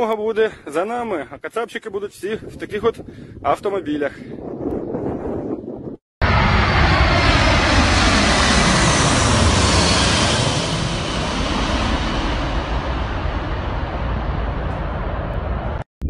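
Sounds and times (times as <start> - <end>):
jet plane flying overhead: 6.2 - 15.8
jet engine whine: 6.2 - 15.9.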